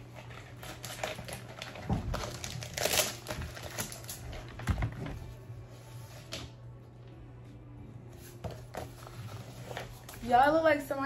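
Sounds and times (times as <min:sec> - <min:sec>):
bubble mailer crinkling: 0:00.1 - 0:05.3.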